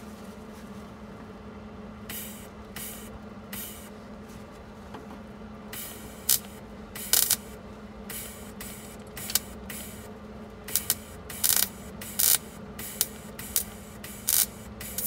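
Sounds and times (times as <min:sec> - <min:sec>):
steady welder hum: 0:01.2 - 0:04.8, 0:05.4 - 0:15.0
welder bursts: 0:02.1 - 0:03.9, 0:05.7 - 0:15.0.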